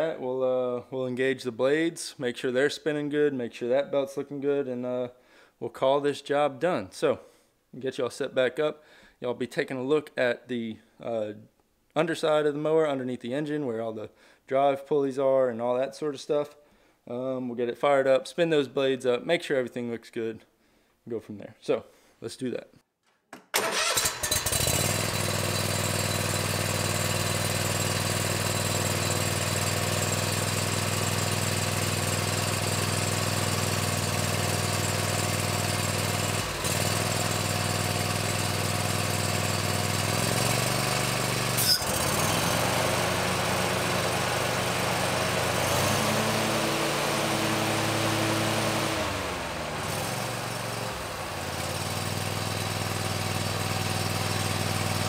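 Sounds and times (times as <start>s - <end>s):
mower blades spinning up: 23.4s - 55.0s
mower engine running: 23.6s - 55.0s.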